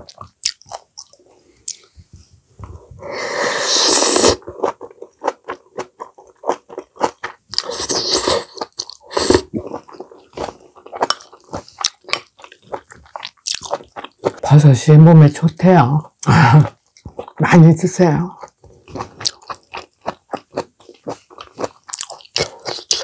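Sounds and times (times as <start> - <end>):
person chewing with wet mouth clicks: 0.0 - 1.9, 4.4 - 14.4, 18.4 - 23.0
loud hissing: 3.0 - 4.4.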